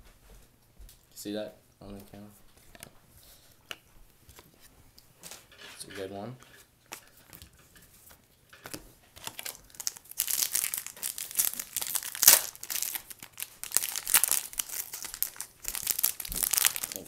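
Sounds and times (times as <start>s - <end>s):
foil wrapper tearing and crinkling: 9.2s - 17.0s.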